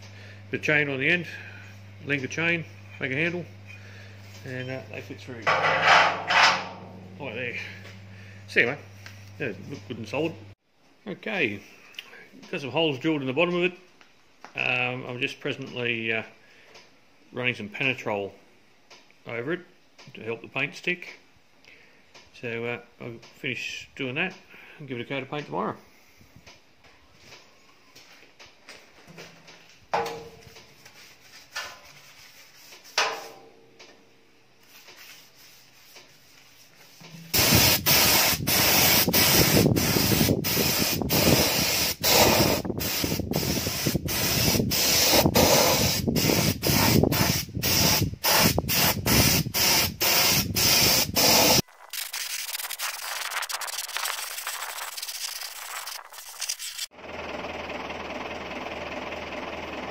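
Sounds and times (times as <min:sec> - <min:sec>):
paint spray gun hissing: 0:37.0 - 0:51.6, 0:52.3 - 0:56.9
tractor engine running: 0:54.7 - 0:59.9.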